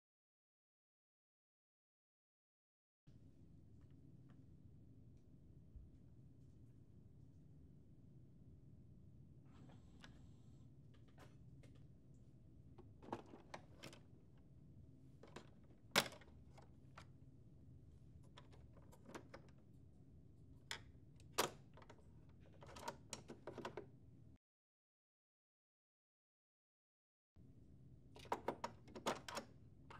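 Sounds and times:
faint low hum: 3.1 - 24.4.

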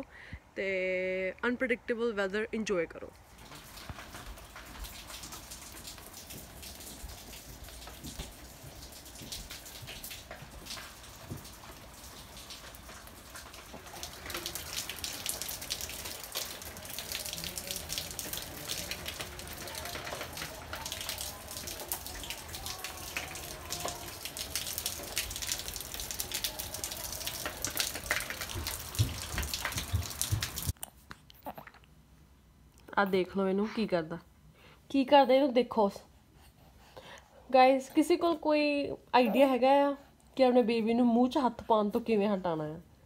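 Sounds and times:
rain pouring down: 3.2 - 30.8.

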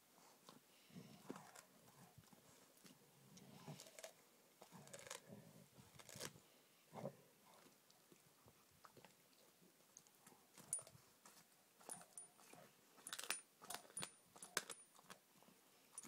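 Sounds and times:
dog chewing bone: 3.7 - 5.3, 11.8 - 15.2
bone cracking: 4.8 - 5.2, 6.0 - 6.4.

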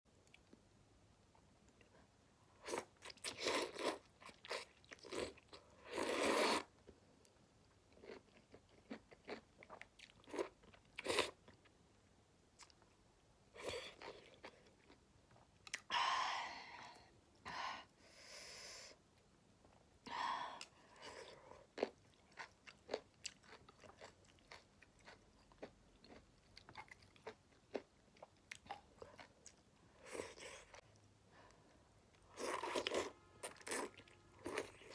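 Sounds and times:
slurping noodles: 5.9 - 6.7.

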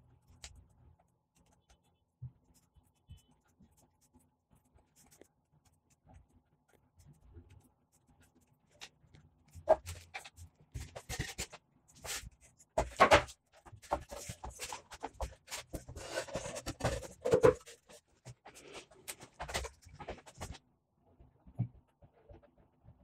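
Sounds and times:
wooden panels knocking and scraping: 12.8 - 20.6.

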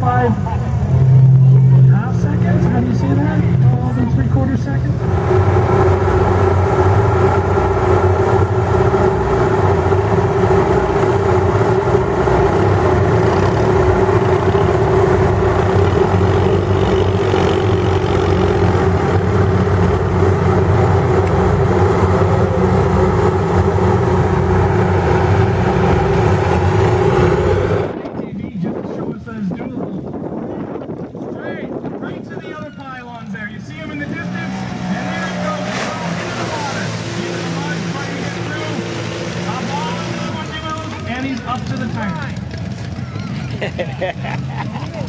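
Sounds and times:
excavator diesel engine running: 0.0 - 28.0.

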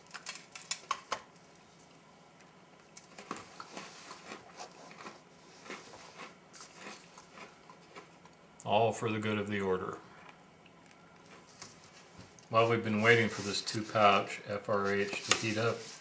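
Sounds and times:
cookie cracking: 0.0 - 8.3
chewing crunches: 2.9 - 8.4.

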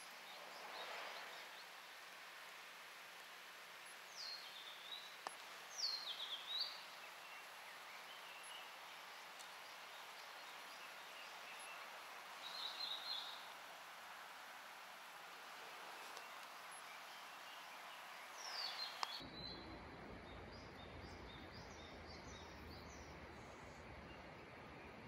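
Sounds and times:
faint steady outdoor hiss: 0.0 - 25.0
songbird calling: 3.8 - 13.6, 15.6 - 19.2.

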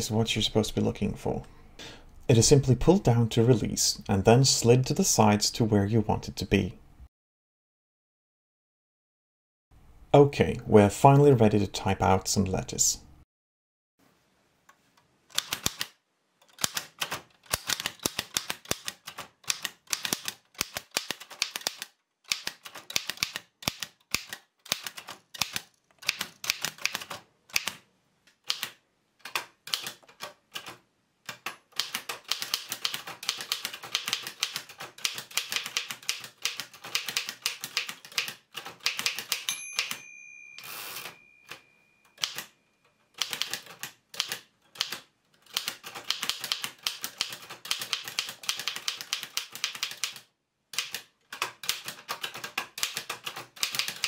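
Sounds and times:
typewriter clacking: 15.3 - 27.8, 28.4 - 40.0, 42.2 - 42.5, 43.1 - 54.0
typewriter carriage return rush: 15.4 - 15.9, 16.5 - 27.8, 28.5 - 40.0, 42.2 - 42.5, 43.1 - 54.0
typewriter bell ding: 39.4 - 42.8.

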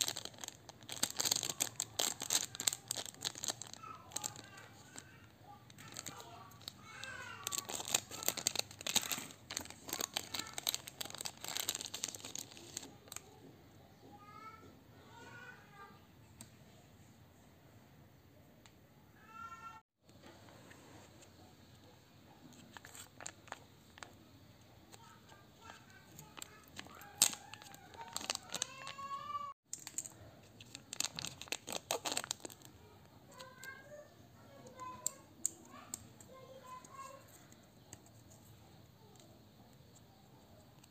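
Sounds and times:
plastic wrapper crinkling: 0.0 - 13.2, 22.5 - 24.2, 24.9 - 33.7.

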